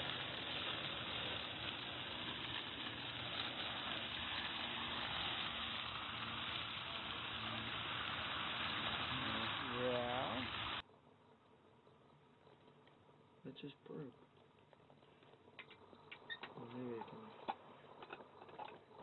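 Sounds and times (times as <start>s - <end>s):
fountain water splashing on paving: 0.0s - 10.8s.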